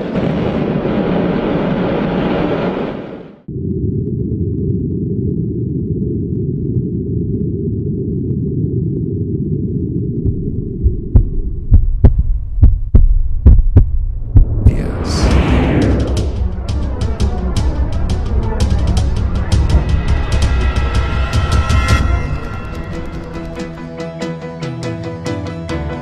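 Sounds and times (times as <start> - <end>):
low drone: 2.6 - 24.3
sharp hits with deep thuds: 10.3 - 22.0.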